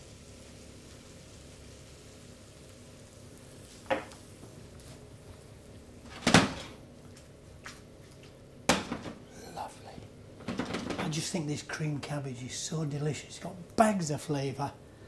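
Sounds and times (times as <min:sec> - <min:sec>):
frying pan knocking on hob: 0:03.8 - 0:04.2.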